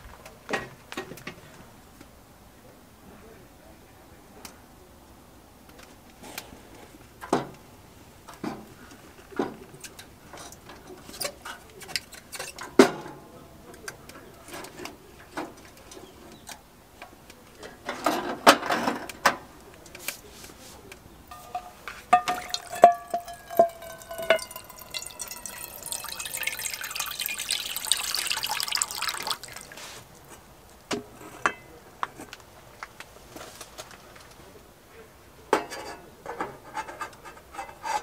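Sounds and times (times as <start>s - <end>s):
water pouring into pot: 22.2s - 30.1s.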